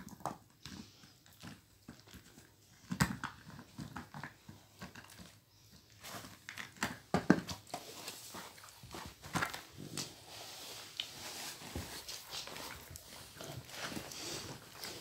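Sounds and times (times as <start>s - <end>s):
dog gnawing rubber toy: 0.0s - 10.0s, 11.8s - 15.0s
bedding rustling: 7.6s - 15.0s.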